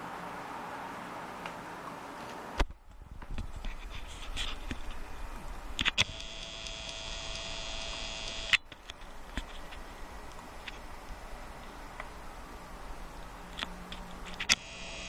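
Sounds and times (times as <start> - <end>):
camera zoom motor whining: 5.8 - 8.6, 14.5 - 15.0
sharp click: 5.8 - 9.5.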